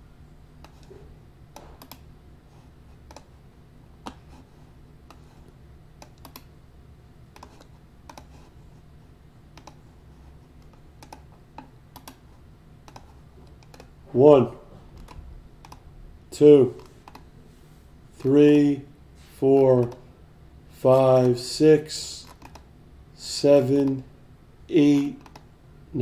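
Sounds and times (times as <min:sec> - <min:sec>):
low steady hum: 0:00.0 - 0:26.0
mouse and keyboard clicks: 0:00.6 - 0:00.9, 0:01.5 - 0:02.0, 0:03.0 - 0:03.3, 0:06.0 - 0:06.5, 0:07.4 - 0:08.5, 0:09.6 - 0:09.8, 0:10.6 - 0:12.2, 0:12.8 - 0:13.9, 0:15.0 - 0:15.8, 0:16.8 - 0:17.3, 0:22.2 - 0:22.7, 0:25.2 - 0:25.5.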